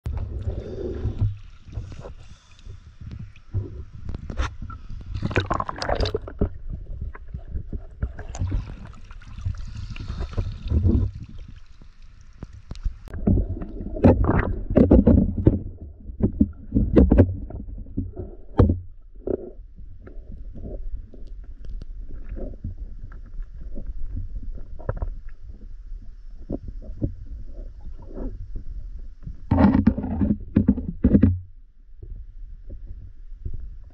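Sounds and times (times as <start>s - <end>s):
muffled underwater rumble: 0.0s - 33.9s
river water splashing and gurgling: 5.1s - 6.5s.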